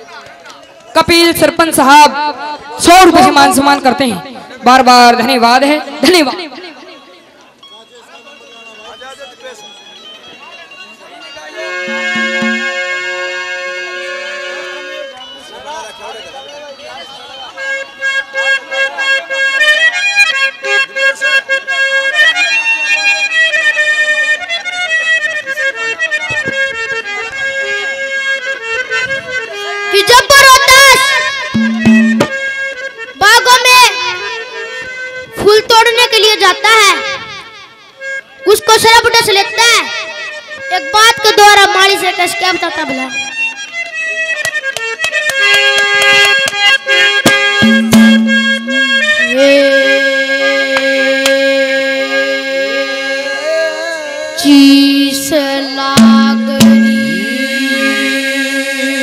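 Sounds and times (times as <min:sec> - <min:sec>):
reedy harmonium-like folk melody: 0:00.0 - 0:59.0
drum strokes: 0:11.9 - 0:12.9, 0:31.6 - 0:32.4, 0:47.3 - 0:49.4, 0:56.0 - 0:58.0.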